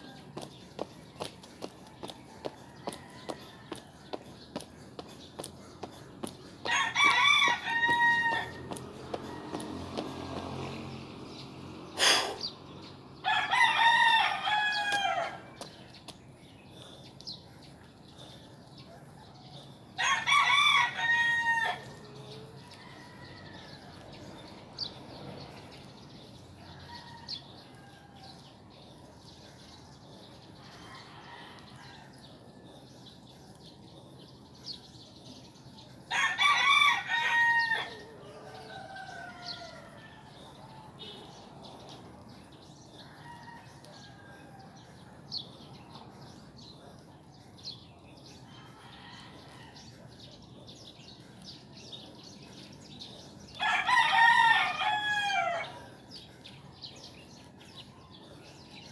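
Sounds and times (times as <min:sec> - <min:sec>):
small birds chirping: 0:00.0 - 0:58.9
rooster crowing: 0:06.6 - 0:10.4, 0:13.2 - 0:15.5, 0:36.1 - 0:40.4, 0:53.6 - 0:55.9.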